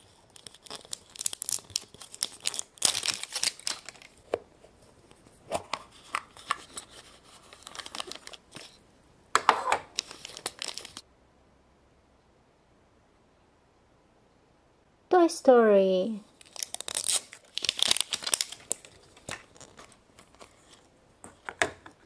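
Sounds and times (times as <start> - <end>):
foil wrapper crinkling and tearing: 0.0 - 4.3, 6.0 - 8.8, 9.9 - 11.0, 16.4 - 20.9.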